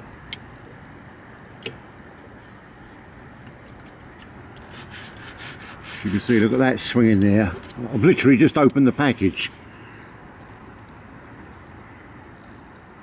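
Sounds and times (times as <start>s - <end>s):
faint ticks and scrapes: 0.3s - 5.4s, 10.4s - 11.7s
hand rubbing loose parts: 3.6s - 9.6s.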